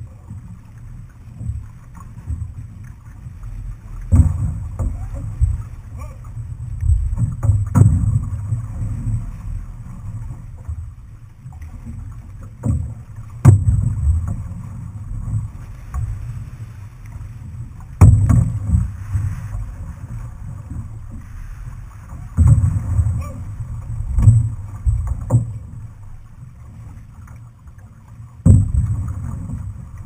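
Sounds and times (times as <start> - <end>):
low rumble of water: 0.0 - 30.0
sharp knocks: 18.0 - 18.9.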